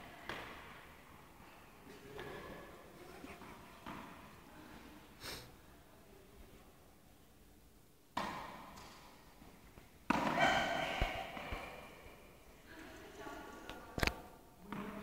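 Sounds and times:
racket hitting tennis ball: 0.2s - 0.8s, 8.2s - 12.2s.

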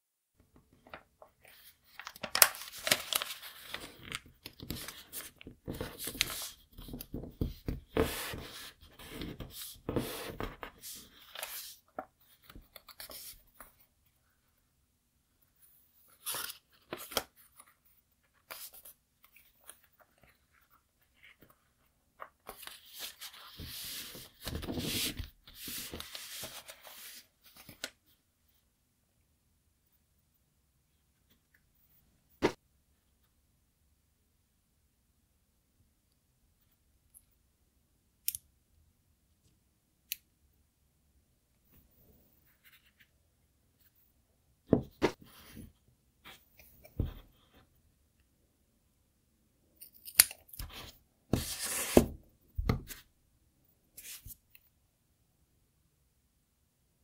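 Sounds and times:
paper rustling as folded: 0.8s - 13.4s, 16.1s - 28.0s.

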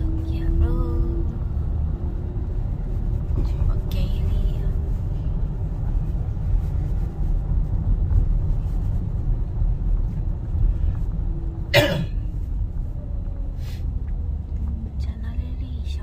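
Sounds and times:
car road and engine rumble: 0.0s - 16.0s
person coughing: 11.7s - 12.2s.

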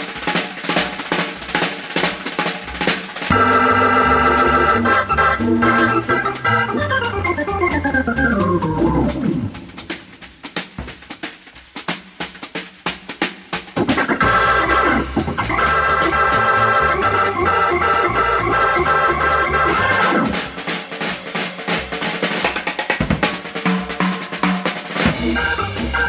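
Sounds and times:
drum kit playing: 0.0s - 26.0s
bass line: 3.3s - 9.6s, 14.2s - 20.4s, 25.1s - 26.0s
electric organ chords: 3.3s - 9.7s, 13.8s - 20.6s, 25.1s - 26.0s.

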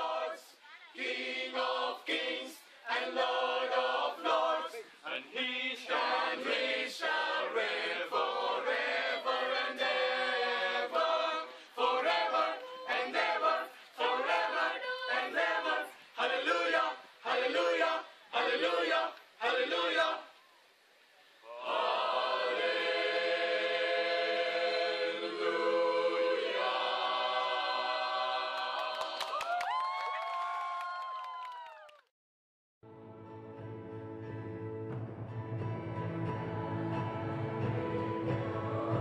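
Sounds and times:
group singing together: 0.0s - 20.3s, 21.5s - 29.4s, 36.4s - 39.0s.

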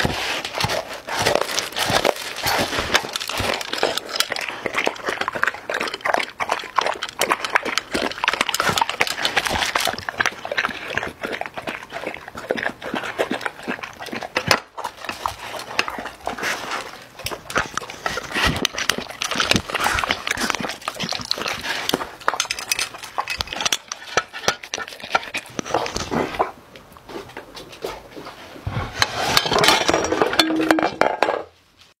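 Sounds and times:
dog licking and lapping: 0.0s - 26.6s
kibble clinking against glass: 29.6s - 31.2s.

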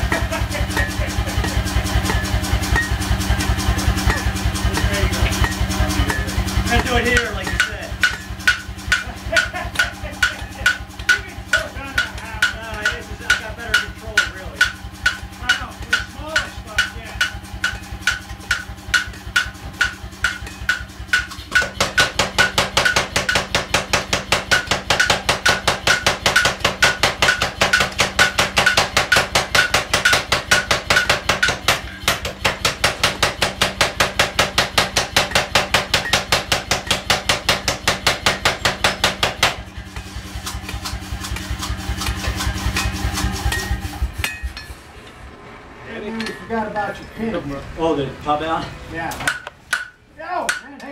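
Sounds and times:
power hammer pounding: 0.0s - 44.7s, 46.1s - 50.9s
low mechanical hum: 0.0s - 50.9s
hammer ringing on anvil: 0.1s - 3.0s, 4.0s - 39.8s, 49.3s - 50.7s.

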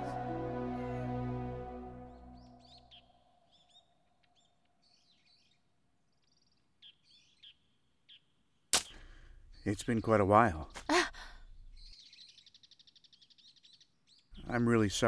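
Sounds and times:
sad background music: 0.0s - 3.0s
small birds chirping: 2.1s - 15.0s.

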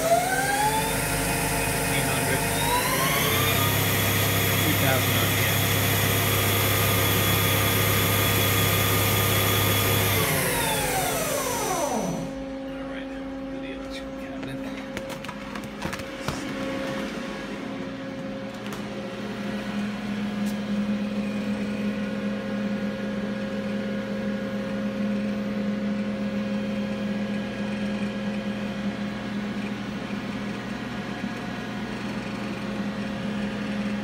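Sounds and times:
cnc lathe electrical hum: 0.0s - 34.0s.

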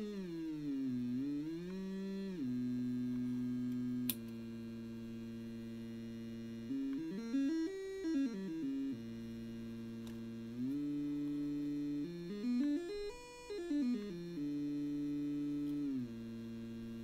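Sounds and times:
synthesizer oscillator tone: 0.0s - 4.1s, 6.4s - 9.6s, 10.6s - 16.6s.

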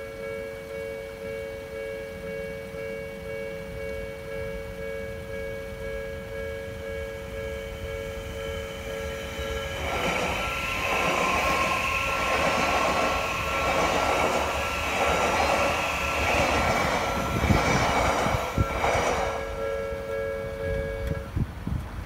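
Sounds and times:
crossing alarm bell ringing: 0.0s - 21.4s
train wheels rushing on rail: 6.8s - 22.0s.

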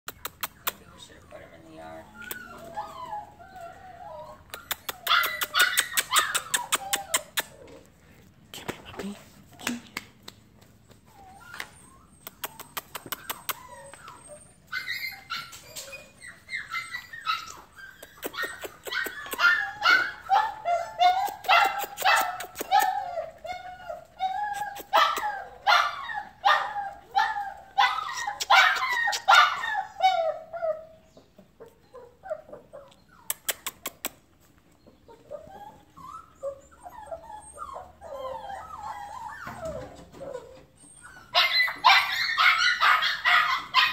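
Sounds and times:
sharp clicks: 0.1s - 0.8s
puppies yipping and barking: 0.1s - 8.0s, 10.6s - 43.9s.

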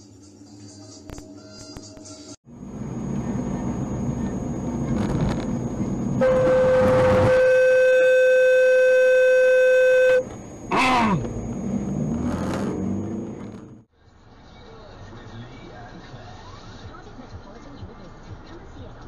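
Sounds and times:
vehicle and road noise: 2.4s - 19.0s
car horn blast: 6.2s - 11.0s.

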